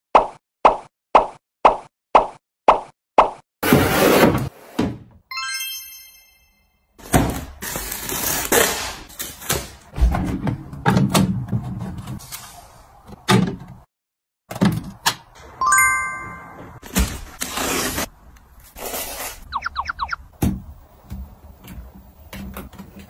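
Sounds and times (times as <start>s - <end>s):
bright ringing chime: 5.3s - 6.9s, 15.6s - 16.8s
plastic bins knocking and clattering: 9.4s - 12.2s.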